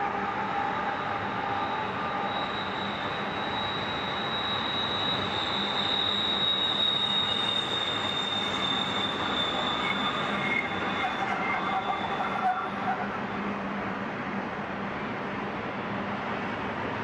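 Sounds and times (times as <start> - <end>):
high wheel squeal: 0.0 - 13.5
train wheels rolling on rails: 0.2 - 15.4.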